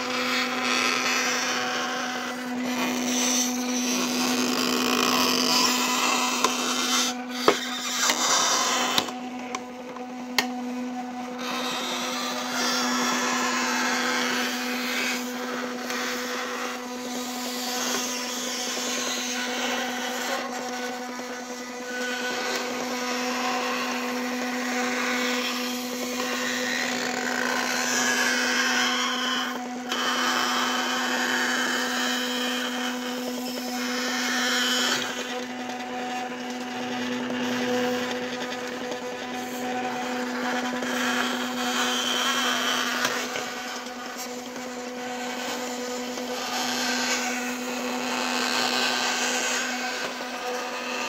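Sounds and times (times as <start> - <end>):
electric motor humming: 0.0 - 51.0
plastic gears whirring: 2.2 - 9.2, 31.8 - 51.0.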